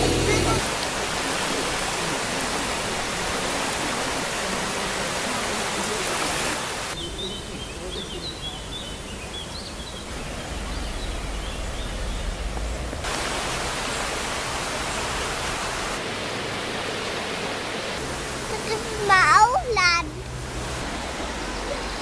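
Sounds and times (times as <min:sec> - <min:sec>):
river rushing: 0:00.0 - 0:22.0
birds chirping faintly: 0:06.9 - 0:13.0.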